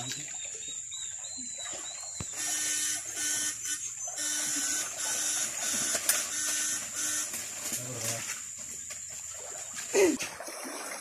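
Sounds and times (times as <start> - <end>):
electric fishing shocker buzzing: 2.3 - 7.7.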